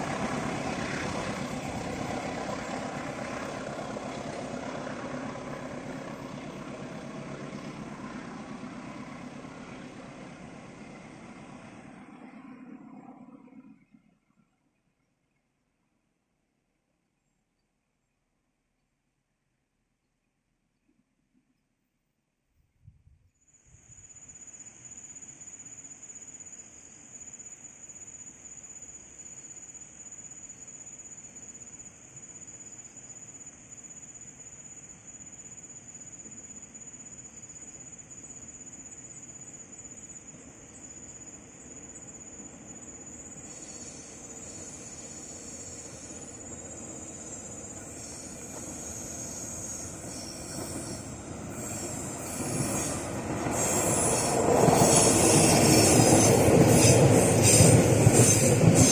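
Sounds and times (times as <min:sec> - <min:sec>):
freight train rumble: 0:00.0 - 0:13.5, 0:33.2 - 0:58.9
insect chirring: 0:23.4 - 0:58.9
train wheel screech: 0:40.9 - 0:58.9.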